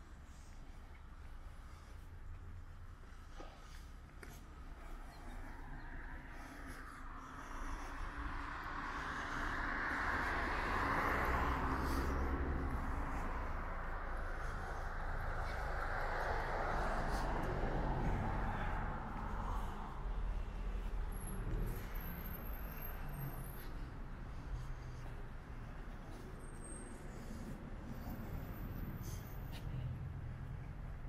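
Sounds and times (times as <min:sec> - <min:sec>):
low traffic rumble: 0:00.0 - 0:31.0
vehicle passing: 0:00.3 - 0:31.0.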